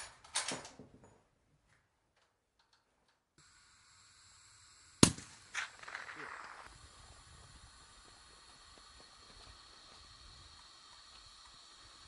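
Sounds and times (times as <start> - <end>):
faint outdoor hiss: 0.0 - 12.0
rifle shot: 5.0 - 6.6.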